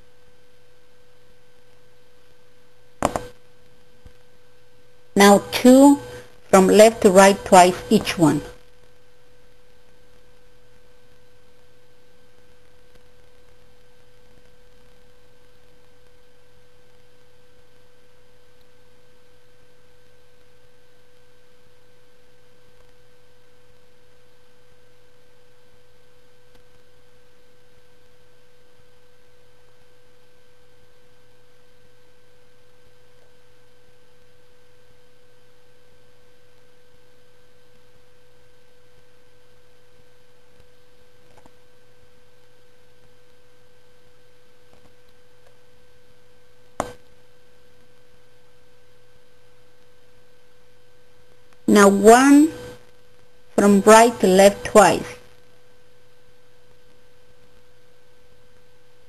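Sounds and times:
constant hiss: 0.0s - 35.0s.

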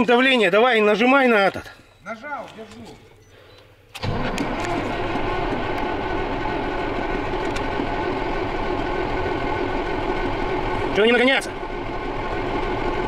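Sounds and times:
electric starter cranking diesel engine: 3.8s - 13.0s.

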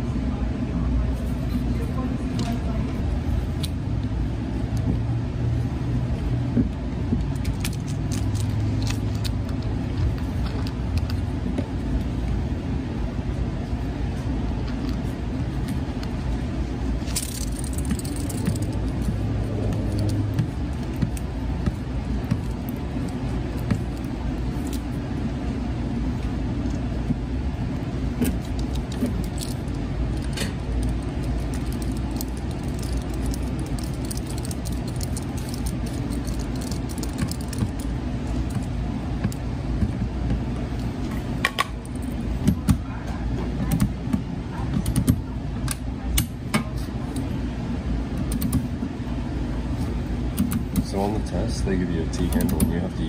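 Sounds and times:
low hum: 0.0s - 43.3s
clicks and metallic rattles: 28.2s - 37.9s.

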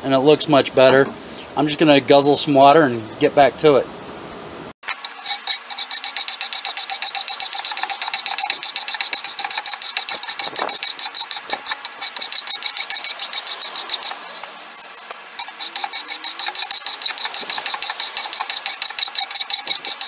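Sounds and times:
hand file rasping wood: 5.3s - 14.2s, 15.4s - 20.0s.

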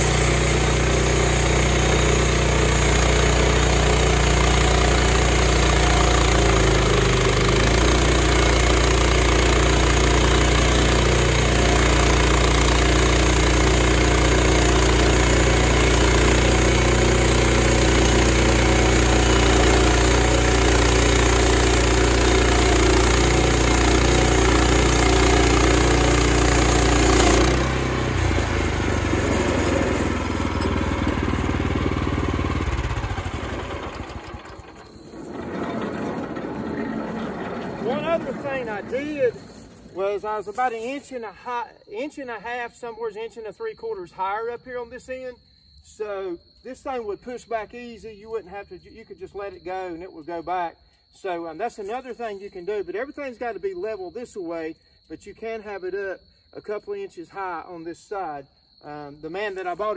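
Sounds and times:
sawmill engine running: 0.0s - 41.0s
band blade sawing log: 14.4s - 32.0s, 35.2s - 40.0s.

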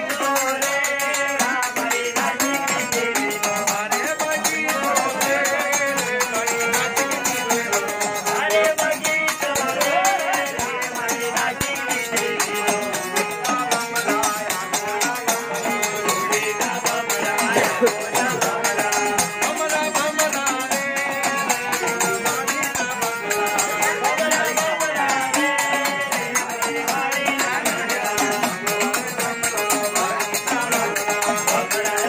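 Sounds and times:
harmonium melody: 0.0s - 32.0s
rattling hand percussion: 0.0s - 32.0s.

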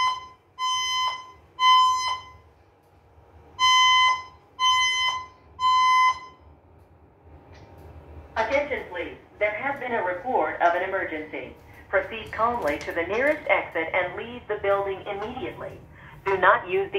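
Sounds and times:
fire alarm beeps: 0.0s - 2.6s, 3.5s - 6.5s
alarm voice messages: 8.4s - 16.9s.

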